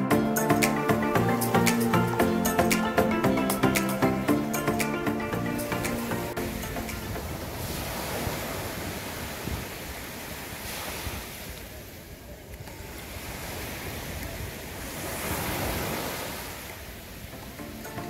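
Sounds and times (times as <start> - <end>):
small waves breaking on shore: 5.8 - 18.0.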